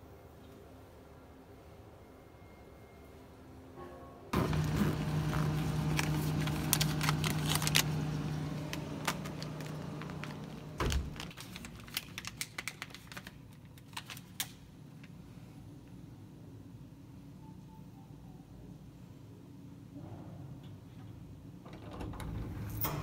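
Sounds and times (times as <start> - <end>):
refrigerator humming: 4.3 - 12.5
paper snack bag rustling: 4.4 - 14.6.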